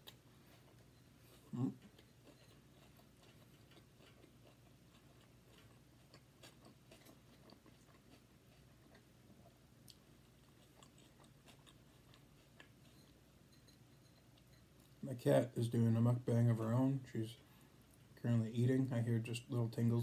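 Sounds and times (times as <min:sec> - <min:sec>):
quiet chewing: 0:00.0 - 0:15.0, 0:17.4 - 0:18.2
low room hum: 0:00.0 - 0:20.0.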